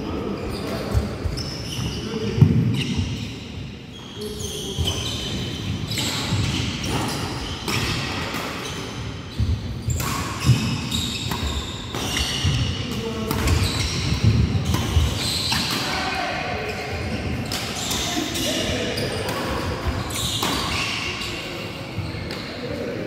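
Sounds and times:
shoes squeaking on wooden court: 0.1 - 16.0, 16.6 - 22.7
rackets hitting shuttlecock: 9.4 - 16.1, 17.4 - 21.0.

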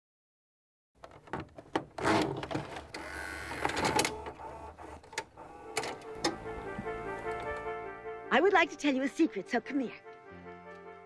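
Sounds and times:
tape player mechanical clicks: 2.9 - 7.5
short motor whir: 2.9 - 7.8.

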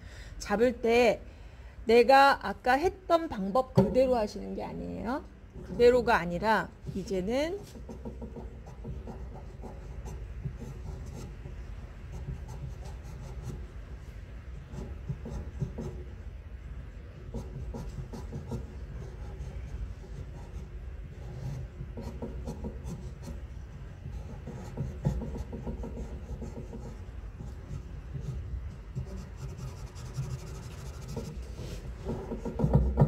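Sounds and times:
steady low hum: 0.0 - 33.0
pencil scratching on paper: 7.6 - 13.7, 14.6 - 16.0, 17.3 - 23.4, 24.1 - 32.8.

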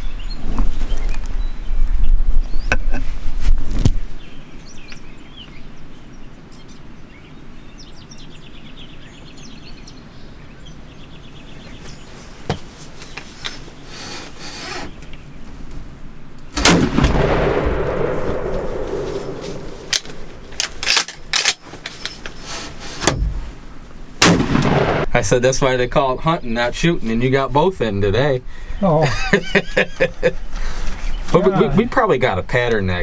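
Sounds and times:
birds chirping and trilling: 0.0 - 3.2, 4.0 - 16.5, 17.4 - 24.1, 24.9 - 33.0
low rumble of wind: 0.0 - 33.0
loud shotgun blast: 16.6 - 21.0, 24.2 - 25.2.

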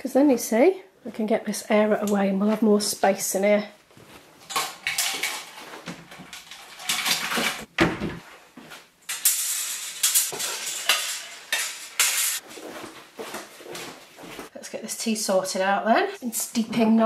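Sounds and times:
metal clothes airer clinking: 9.1 - 13.5.

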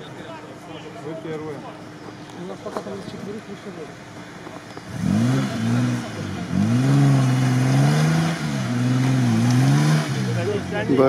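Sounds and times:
engine revving hard: 4.8 - 11.0.

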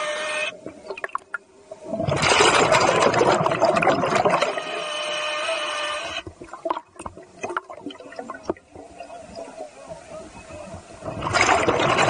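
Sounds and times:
exhaled bubbles rushing: 0.9 - 4.6, 6.5 - 9.5, 11.0 - 12.0.

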